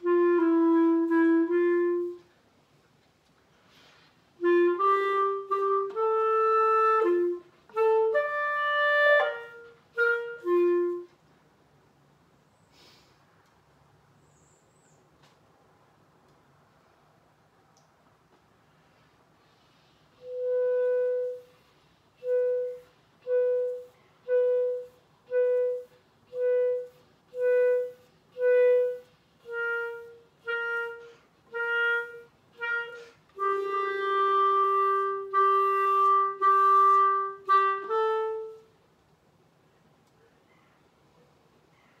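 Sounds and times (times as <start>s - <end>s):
solo clarinet playing: 0.0s - 2.4s, 4.4s - 11.2s, 20.1s - 38.8s.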